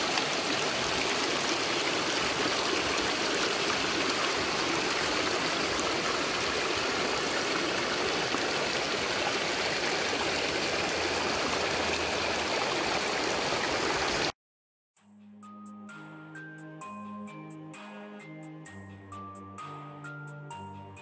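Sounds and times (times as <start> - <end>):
stream splashing over rocks: 0.0 - 14.3.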